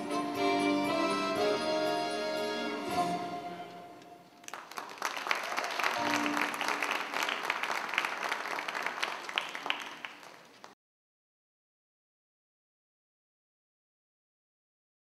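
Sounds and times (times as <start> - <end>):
audience applause: 4.4 - 10.8.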